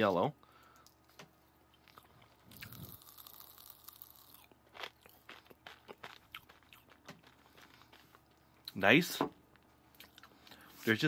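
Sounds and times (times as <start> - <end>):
popping candy crackling: 2.4 - 8.4.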